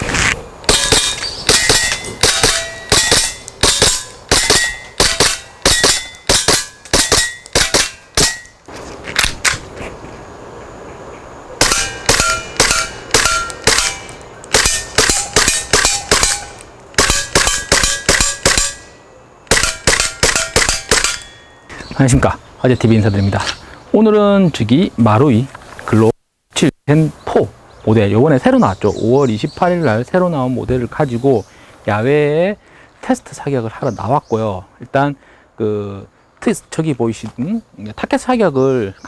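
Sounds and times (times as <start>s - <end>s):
airsoft pistol firing: 0.7s - 8.5s, 11.6s - 18.8s, 19.5s - 21.3s
pellets ringing on steel targets: 0.7s - 8.6s, 11.6s - 21.7s.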